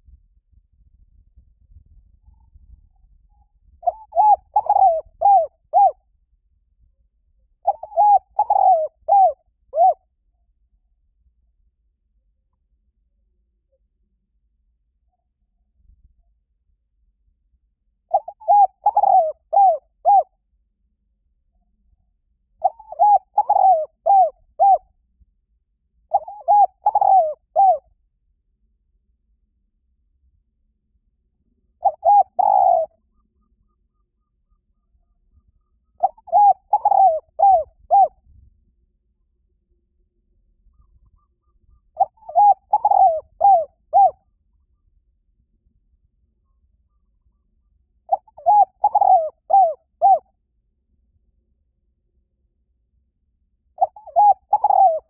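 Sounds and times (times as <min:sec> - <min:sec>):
dove cooing: 0:03.8 - 0:06.0, 0:07.6 - 0:10.0, 0:18.1 - 0:20.3, 0:22.6 - 0:24.8, 0:26.1 - 0:27.8, 0:31.8 - 0:38.2, 0:40.8 - 0:44.2, 0:48.1 - 0:50.3, 0:53.8 - 0:55.0.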